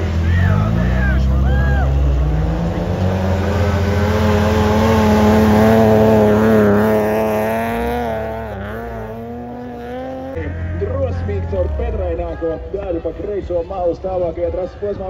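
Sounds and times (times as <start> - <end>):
rally car engine accelerating: 0.0 - 12.8.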